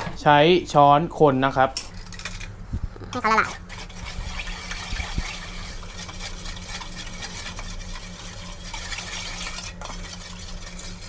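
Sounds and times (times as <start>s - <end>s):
spoon scraping in saucepan: 3.1s - 11.0s.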